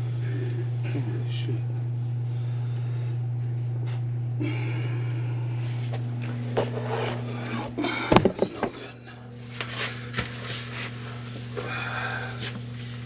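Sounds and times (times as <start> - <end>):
motor humming: 0.0 - 13.0
rustling scraping noise: 6.6 - 7.3, 9.5 - 11.2.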